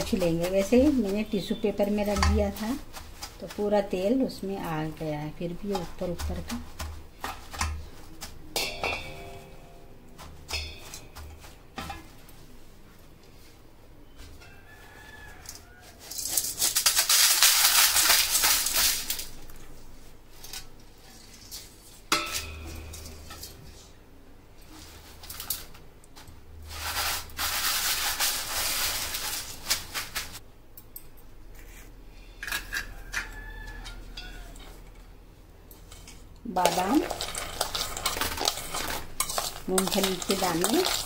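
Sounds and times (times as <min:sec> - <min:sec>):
fried potato rustling on paper: 0:00.0 - 0:08.5, 0:14.6 - 0:22.1, 0:24.6 - 0:30.4, 0:36.5 - 0:41.0.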